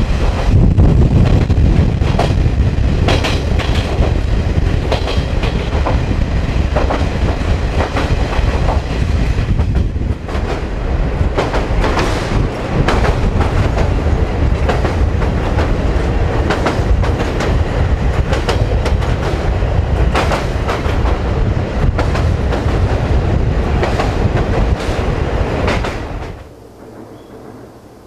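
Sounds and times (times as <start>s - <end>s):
train rumbling over viaduct: 0.0s - 28.0s
wheels clicking over rail joints: 2.1s - 21.2s.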